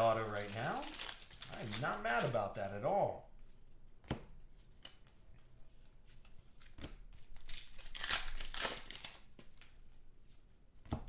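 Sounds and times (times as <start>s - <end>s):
foil wrapper tearing and crinkling: 0.0s - 2.6s, 7.4s - 9.4s.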